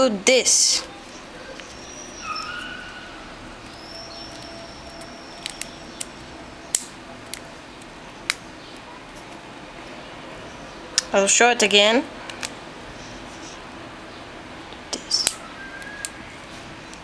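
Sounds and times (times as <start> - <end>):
dog whining faintly: 1.3 - 5.2
plastic pieces clicking: 3.6 - 6.1.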